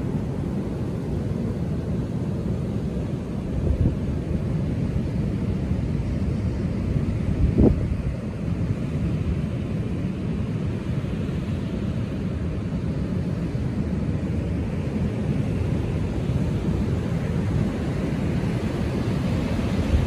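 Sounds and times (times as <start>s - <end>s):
ocean waves breaking: 0.0s - 20.0s
wind buffeting microphone: 6.7s - 8.8s.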